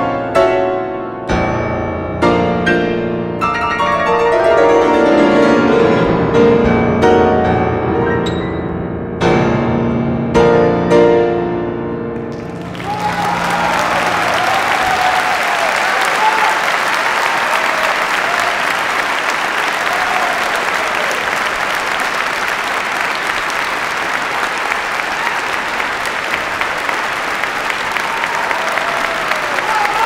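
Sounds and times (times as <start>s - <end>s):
audience applauding: 12.2s - 30.0s.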